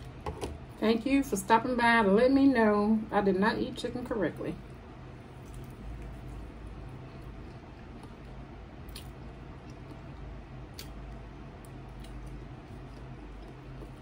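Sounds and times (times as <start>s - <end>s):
steady low hum: 0.0s - 14.0s
person chewing fried chicken: 5.1s - 14.0s.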